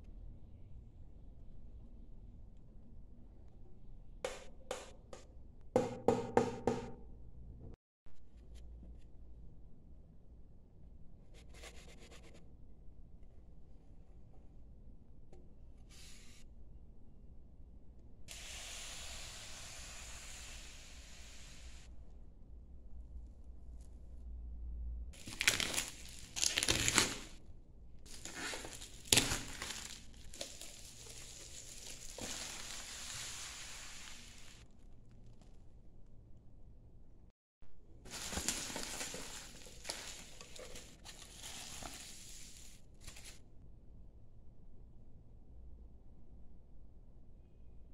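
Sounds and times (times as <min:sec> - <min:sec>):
bubble wrap crinkling: 0:25.2 - 0:27.4, 0:28.1 - 0:34.6, 0:38.1 - 0:43.4.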